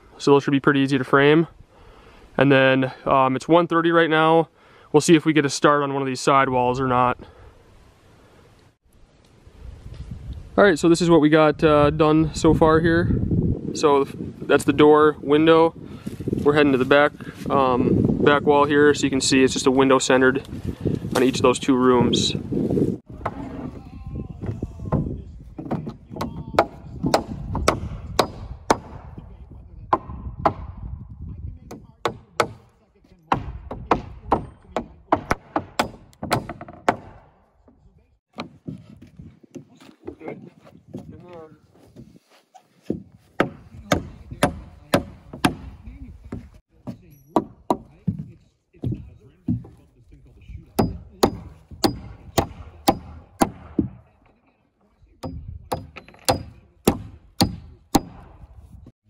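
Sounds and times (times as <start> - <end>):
hammers driving nails into wood: 24.9 - 29.2, 29.9 - 30.8, 31.6 - 37.5, 38.3 - 38.8, 43.4 - 49.8, 50.8 - 54.0, 55.2 - 58.5.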